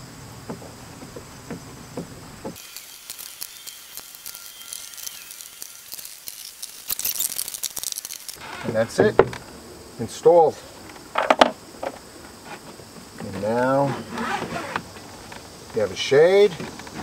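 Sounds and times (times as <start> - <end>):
steady high hiss: 0.0 - 17.0
screwdriver clicks and creaks: 2.6 - 9.0.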